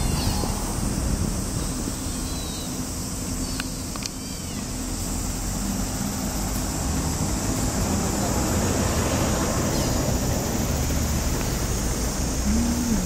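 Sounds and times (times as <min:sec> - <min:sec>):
bus driving past: 0:00.0 - 0:03.4, 0:04.7 - 0:13.0
high arching animal calls: 0:00.0 - 0:04.9
street traffic: 0:00.0 - 0:13.0.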